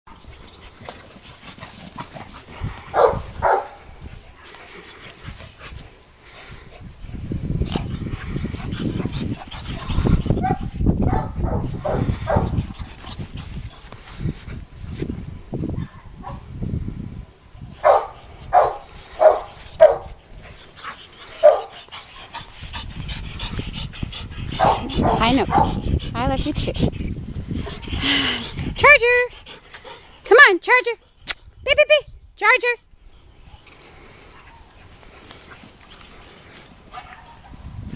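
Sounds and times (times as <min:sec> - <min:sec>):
dog barking: 0:03.0 - 0:03.8, 0:10.4 - 0:12.5, 0:17.8 - 0:20.1, 0:21.4 - 0:21.7, 0:24.6 - 0:25.8.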